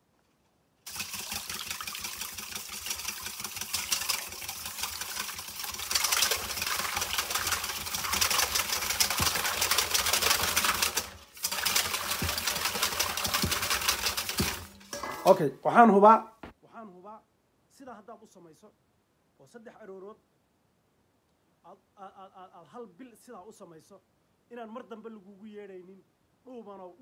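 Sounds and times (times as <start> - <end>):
whisk rattling in metal bowl: 0.9 - 15.3.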